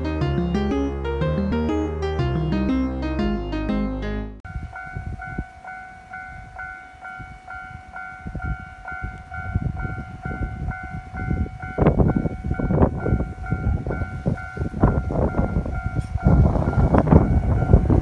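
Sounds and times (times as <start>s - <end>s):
level crossing warning bell: 4.5s - 18.0s.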